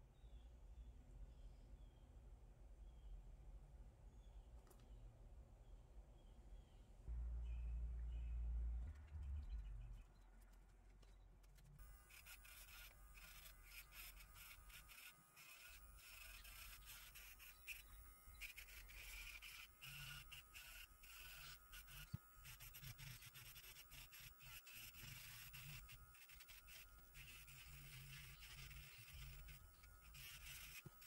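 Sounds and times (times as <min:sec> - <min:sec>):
electric nail drill grinding: 0:11.8 - 0:31.0.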